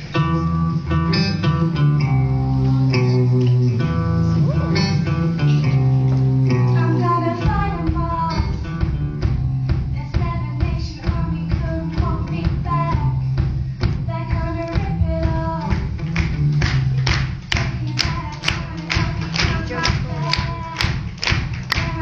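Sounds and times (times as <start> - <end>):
rock band playing live: 0.0 - 22.0
drum hits: 7.4 - 22.0.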